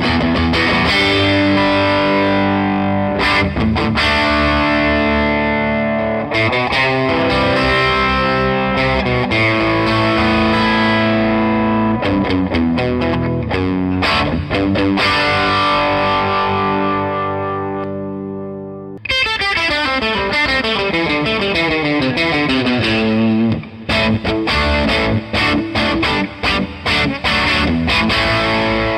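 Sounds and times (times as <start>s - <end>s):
overdriven electric guitar: 0.0s - 28.9s.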